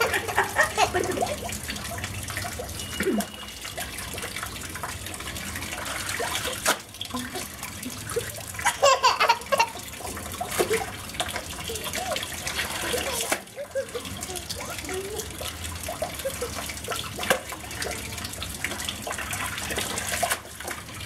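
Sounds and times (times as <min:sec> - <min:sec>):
toddler laughing: 0:00.0 - 0:01.5, 0:08.2 - 0:10.9, 0:12.9 - 0:15.4, 0:16.0 - 0:17.0
tap water running into tub: 0:00.0 - 0:21.0
toddler voice: 0:11.6 - 0:15.4.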